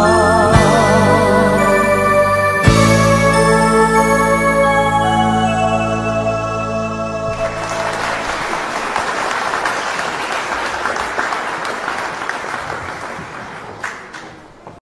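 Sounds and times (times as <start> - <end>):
held music chord: 0.0 - 8.8
audience applause: 7.3 - 14.6.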